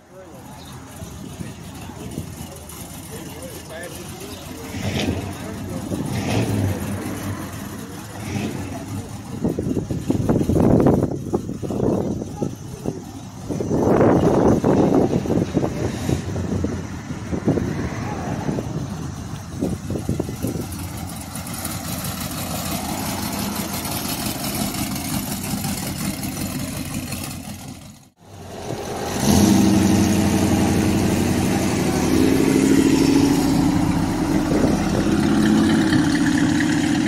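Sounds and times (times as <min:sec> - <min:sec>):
open-air background noise: 0:00.0 - 0:37.0
car engine running at low speed: 0:00.3 - 0:28.5.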